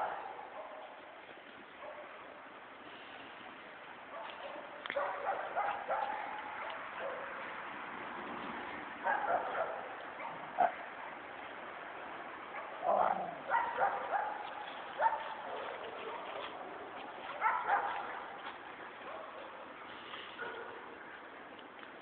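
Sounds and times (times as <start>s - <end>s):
dogs barking and yipping: 0.0s - 1.1s, 1.8s - 2.4s, 4.1s - 7.6s, 9.0s - 11.1s, 12.4s - 21.2s.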